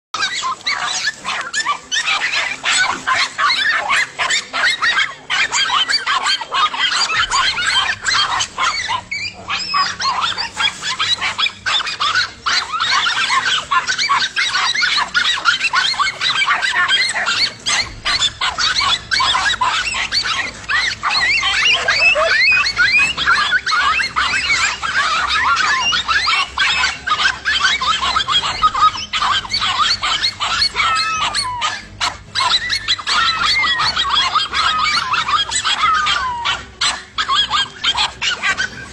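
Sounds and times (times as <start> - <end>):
dogs barking and yelping: 0.2 - 38.9.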